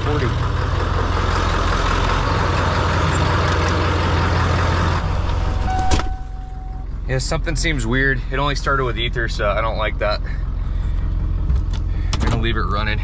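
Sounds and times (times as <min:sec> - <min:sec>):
diesel engine running: 0:00.0 - 0:13.0
short steady beep: 0:05.4 - 0:06.9.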